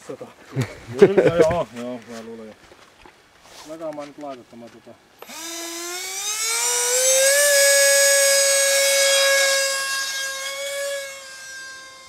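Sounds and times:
electric ducted fan whine: 5.2s - 12.0s.

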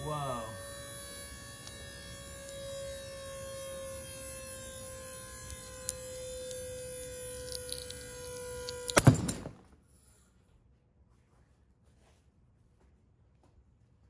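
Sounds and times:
hydraulic rig humming: 0.0s - 9.5s
concrete cracking ticks: 5.4s - 8.0s.

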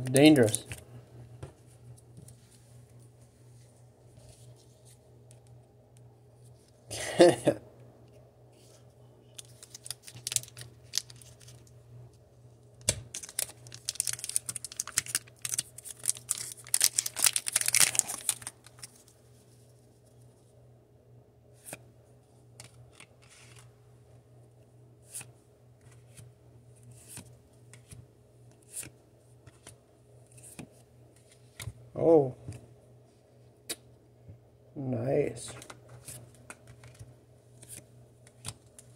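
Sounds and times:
foil wrapper crinkling and tearing: 9.4s - 11.7s, 13.0s - 19.1s.

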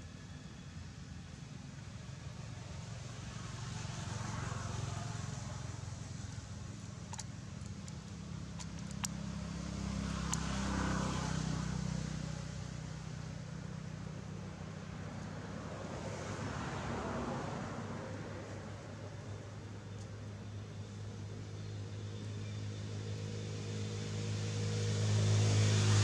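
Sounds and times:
passing vehicles rumbling: 0.0s - 26.0s
sharp ticks: 7.0s - 10.6s.

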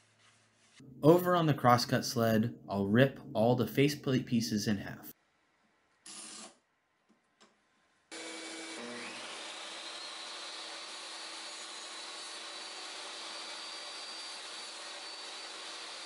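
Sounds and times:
table saw whining: 8.1s - 16.0s.

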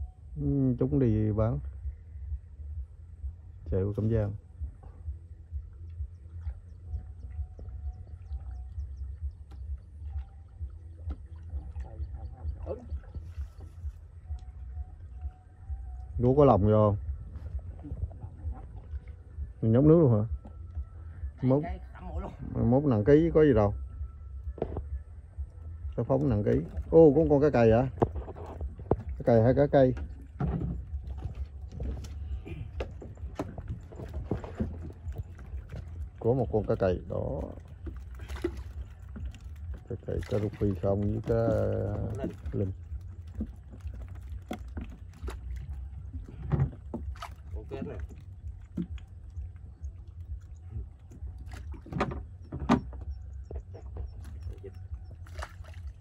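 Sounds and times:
low steady rumble: 0.0s - 56.0s
fish knocking and slapping in boat: 26.1s - 56.0s.

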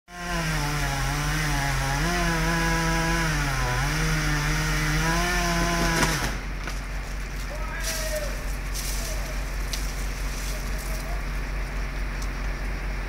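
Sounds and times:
chainsaw cutting wood: 0.1s - 6.8s.

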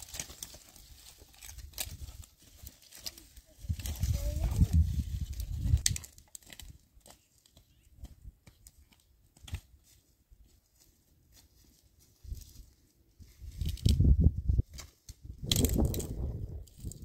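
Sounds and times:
dry sticks snapping and rustling: 0.0s - 4.4s, 5.0s - 10.0s, 13.5s - 14.0s, 14.6s - 17.0s.

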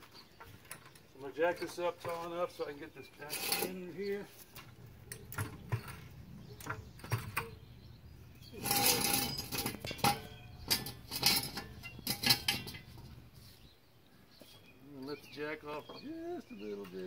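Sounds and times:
metallic rattling with ringing: 3.1s - 4.2s, 8.3s - 13.3s
metal jack stand clanks: 3.2s - 3.8s, 8.5s - 13.2s.

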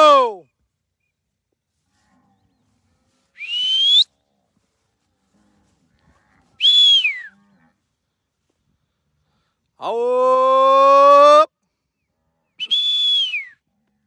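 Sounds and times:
person whistling: 3.4s - 4.1s, 6.6s - 7.3s, 12.6s - 13.6s.

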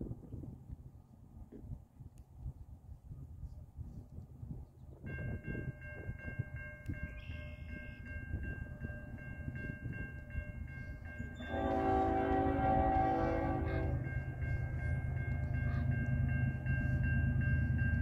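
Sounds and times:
train air horn blast: 11.4s - 14.1s.

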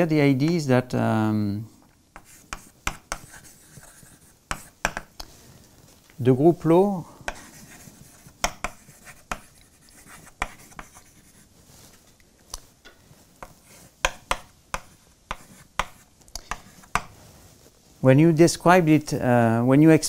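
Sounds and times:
chalk tapping and scratching: 2.2s - 5.4s, 7.2s - 18.0s.

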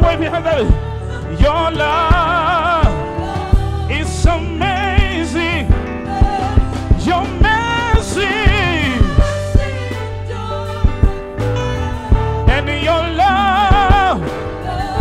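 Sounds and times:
drum beat: 0.0s - 10.1s, 10.8s - 11.4s, 12.0s - 12.8s, 13.7s - 14.3s
bass: 0.0s - 15.0s
keyboard: 0.0s - 15.0s
voices singing gospel: 0.0s - 15.0s.

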